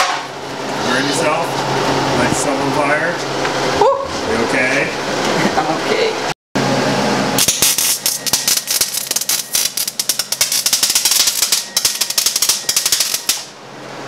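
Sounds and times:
welder crackling and spitting: 0:07.4 - 0:13.5.

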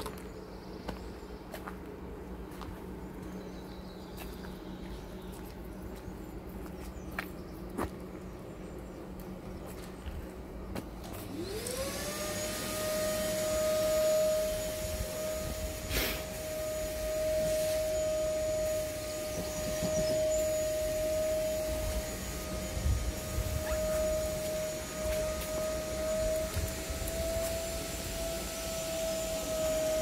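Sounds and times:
electric motor whine: 0:10.7 - 0:30.0.

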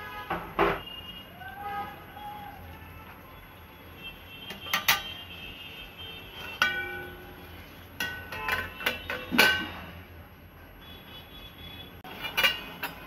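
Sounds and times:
ladle clinking against steel pan: 0:04.5 - 0:05.2, 0:06.4 - 0:07.3, 0:08.0 - 0:09.8
steel lid clanking on pan: 0:06.5 - 0:07.2, 0:08.0 - 0:09.8.

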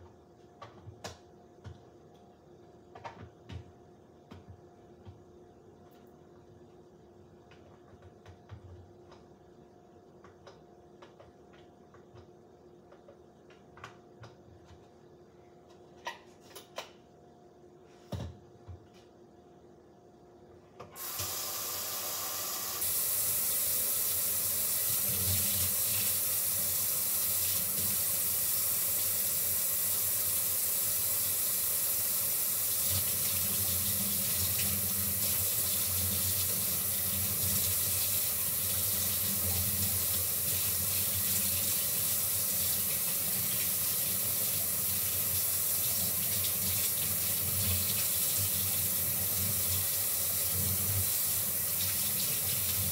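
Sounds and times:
faucet water running: 0:21.0 - 0:52.9.

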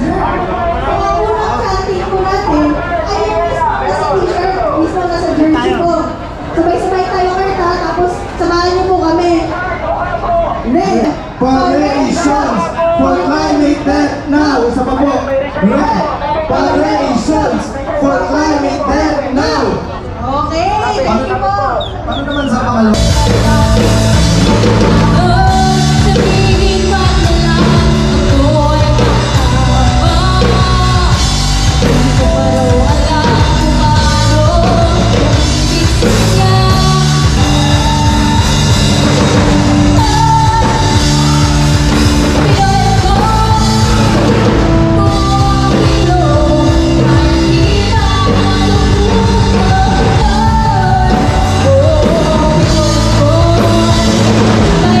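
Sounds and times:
live rock band playing: 0:22.9 - 0:55.0
person singing: 0:23.0 - 0:55.0.

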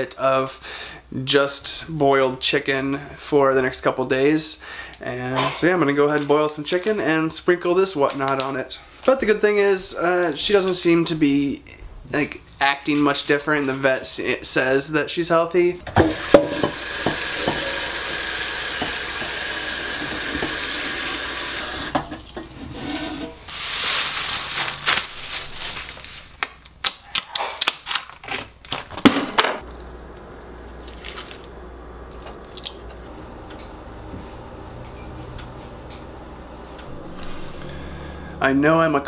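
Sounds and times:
tap running into metal pot: 0:15.9 - 0:17.8, 0:18.7 - 0:19.4
low steady hum: 0:29.6 - 0:39.0.

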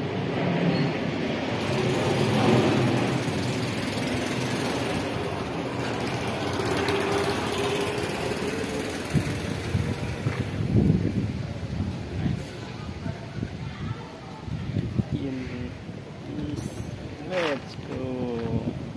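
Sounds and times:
vehicle engine running: 0:01.6 - 0:10.7.

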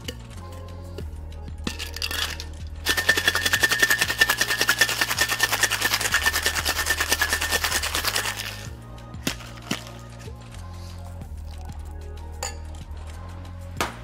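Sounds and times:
ice rattling in cocktail shaker: 0:01.6 - 0:08.7.

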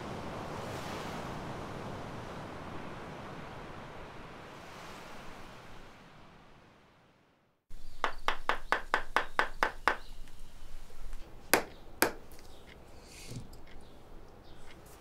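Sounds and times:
hammer tapping: 0:08.0 - 0:10.4, 0:11.5 - 0:12.4.

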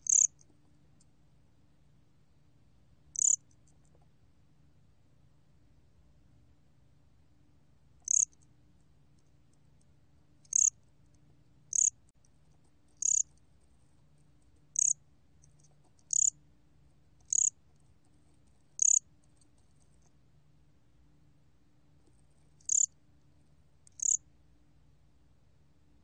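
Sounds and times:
cricket chirping: 0:00.0 - 0:00.4, 0:03.1 - 0:03.5, 0:08.0 - 0:08.5, 0:10.4 - 0:10.8, 0:11.7 - 0:12.0, 0:13.0 - 0:13.4, 0:14.7 - 0:15.0, 0:16.0 - 0:16.4, 0:17.2 - 0:17.6, 0:18.8 - 0:19.1, 0:22.6 - 0:23.0, 0:23.9 - 0:24.2.

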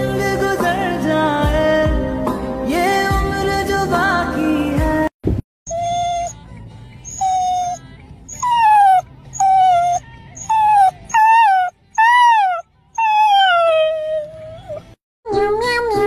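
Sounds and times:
puppy whining: 0:05.7 - 0:06.4, 0:07.0 - 0:15.8.

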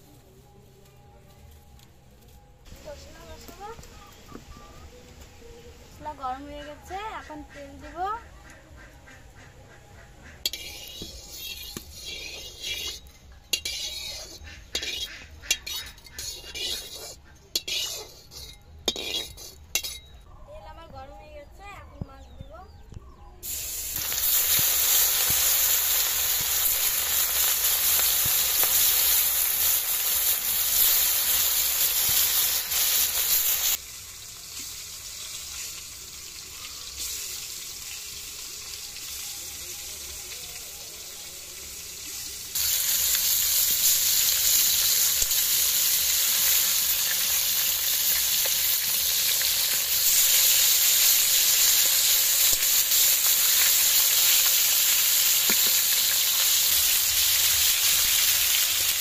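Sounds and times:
fish sizzling in hot oil: 0:09.3 - 0:20.0, 0:23.4 - 0:59.0.

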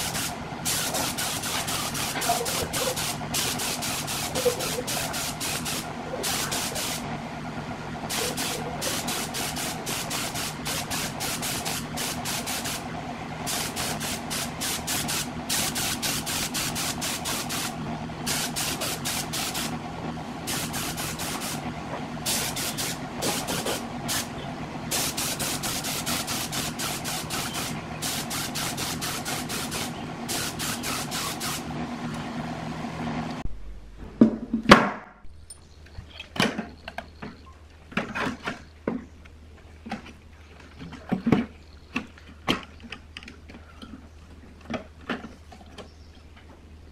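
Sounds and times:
spray gun hissing: 0:00.0 - 0:07.1, 0:08.1 - 0:19.8, 0:20.4 - 0:24.3, 0:24.9 - 0:31.7
air compressor motor hum: 0:00.0 - 0:34.3.

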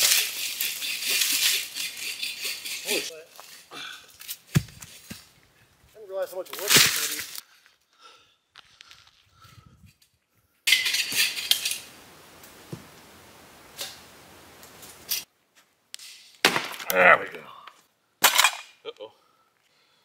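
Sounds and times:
metal grill parts clattering: 0:00.0 - 0:03.6, 0:10.7 - 0:11.9, 0:18.2 - 0:18.6
steady hiss: 0:10.7 - 0:15.3.

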